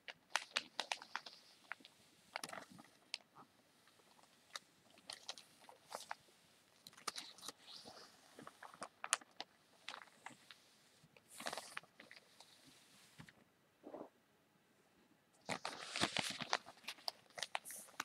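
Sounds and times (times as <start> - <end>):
newspaper crinkling: 0.1 - 3.3, 3.9 - 6.2, 6.8 - 10.6, 11.3 - 12.6, 15.5 - 18.0
paper rustle: 0.3 - 3.2, 11.3 - 13.3, 15.5 - 18.0.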